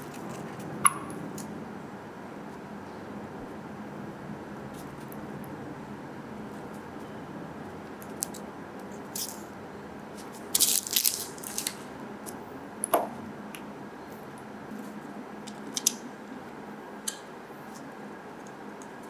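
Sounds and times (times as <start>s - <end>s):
faint steady hum: 0.0s - 19.0s
crinkly rustling: 10.2s - 11.9s.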